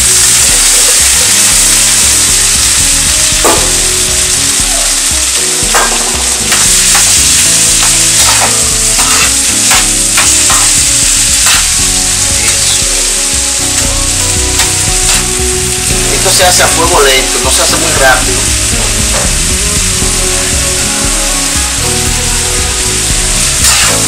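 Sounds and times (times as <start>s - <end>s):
vegetables sizzling in oil: 0.0s - 24.0s
metal spoon scraping pan: 5.8s - 11.8s, 23.6s - 24.0s.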